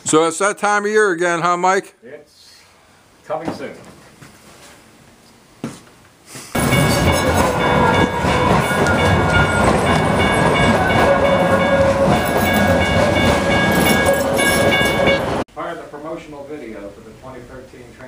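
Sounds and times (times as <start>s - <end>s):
high ringing tones: 6.6s - 15.4s
light-rail train passing: 6.6s - 15.4s.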